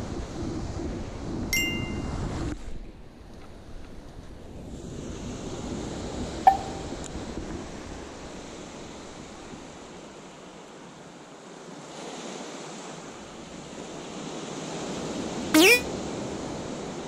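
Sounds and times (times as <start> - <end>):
small waves breaking on shore: 7.7 - 17.0.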